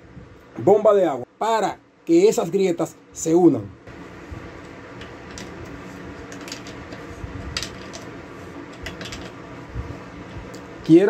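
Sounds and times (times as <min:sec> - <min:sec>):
low hum: 0:03.8 - 0:10.9.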